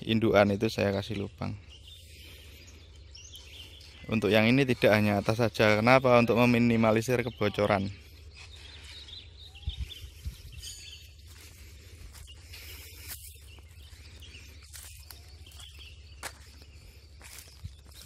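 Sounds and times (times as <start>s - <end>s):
faint bird chirps: 0.0s - 18.0s
steady low rumble: 1.3s - 18.0s.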